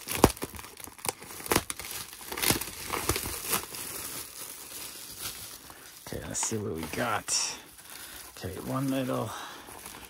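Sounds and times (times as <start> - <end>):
scissors cutting plastic: 0.0 - 3.8
bubble wrap crinkling: 0.0 - 10.0.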